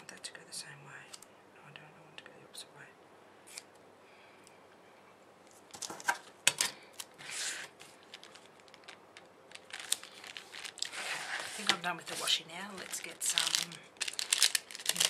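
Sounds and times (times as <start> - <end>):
paper planner swishing: 7.2 - 7.9, 10.4 - 12.4.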